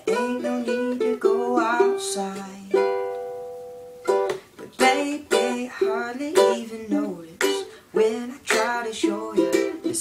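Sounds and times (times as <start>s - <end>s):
ukulele strumming: 0.0s - 10.0s.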